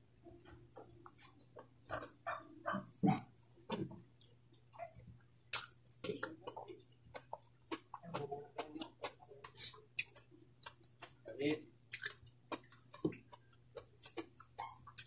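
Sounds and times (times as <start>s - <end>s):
chewing and lip smacks: 0.6s - 15.0s
sharp mouth clicks: 5.5s - 6.4s.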